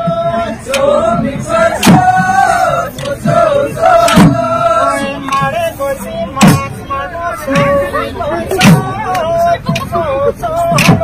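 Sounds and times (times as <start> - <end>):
group of voices chanting: 0.0 - 11.0
sharp beats: 0.3 - 5.7, 6.4 - 6.9.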